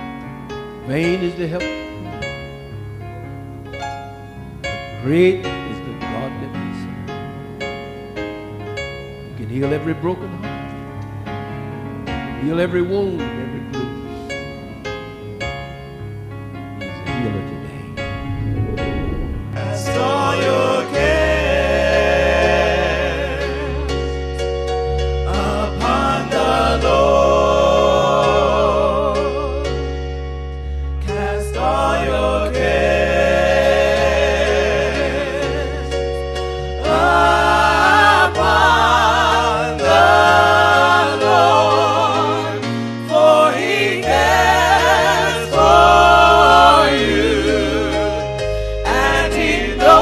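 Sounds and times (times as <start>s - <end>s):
voices singing gospel: 18.0s - 24.0s, 25.2s - 29.8s, 31.0s - 36.0s, 36.7s - 50.0s.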